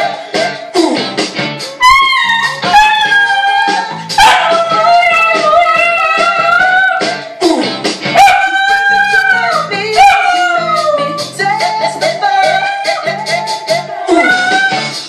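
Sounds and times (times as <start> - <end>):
music playing: 0.0 - 15.0
dog howling: 1.8 - 7.0, 8.2 - 11.2, 14.1 - 14.8.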